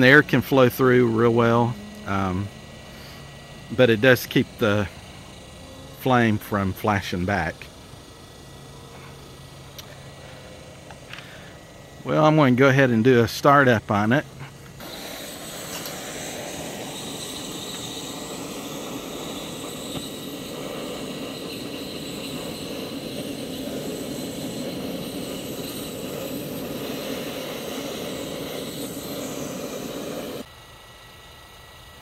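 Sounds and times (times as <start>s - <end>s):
blower fan: 0.0s - 32.0s
propane torch firing: 0.0s - 32.0s.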